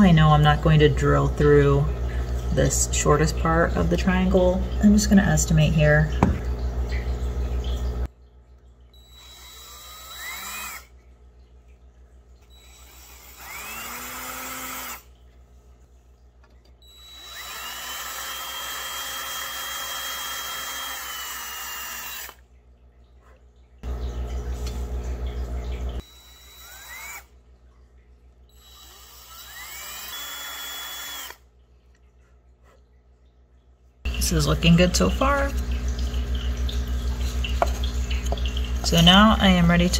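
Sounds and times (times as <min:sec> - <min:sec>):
cordless drill drilling wood: 0:09.0 - 0:10.9, 0:12.5 - 0:15.1, 0:16.8 - 0:22.4, 0:26.0 - 0:27.3, 0:28.6 - 0:31.4.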